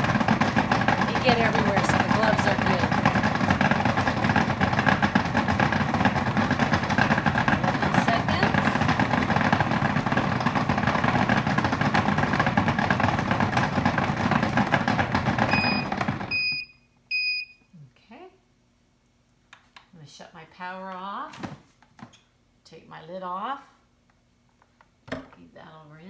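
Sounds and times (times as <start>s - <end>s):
beets rattling in a bowl: 0.0s - 15.7s
food processor motor whir: 0.0s - 16.6s
machine beeping: 15.5s - 17.5s.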